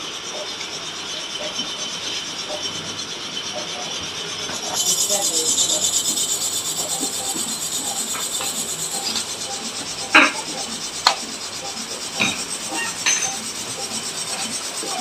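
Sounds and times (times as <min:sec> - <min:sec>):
metal scraping on metal: 0:01.9 - 0:15.0
sharp metal knocks: 0:11.6 - 0:14.5.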